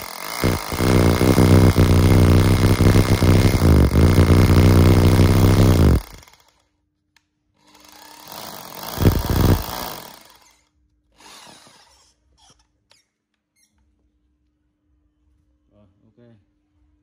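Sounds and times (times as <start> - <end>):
electric power tool running: 0.0 - 6.5, 7.9 - 10.5.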